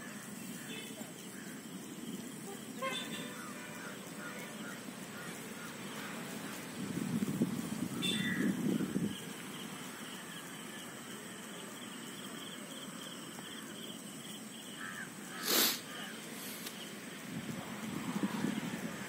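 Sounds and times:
insects chirring: 0:00.0 - 0:19.0
wind rumble on microphone: 0:06.3 - 0:09.6, 0:17.1 - 0:19.0.

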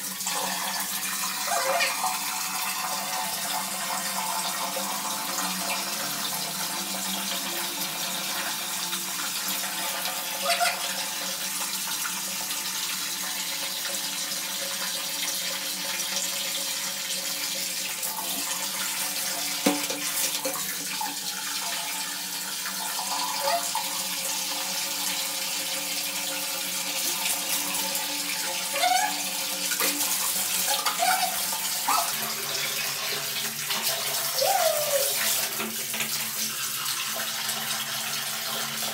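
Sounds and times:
tap water running into bucket: 0:00.0 - 0:38.9
knocks and splashes: 0:19.6 - 0:20.7.

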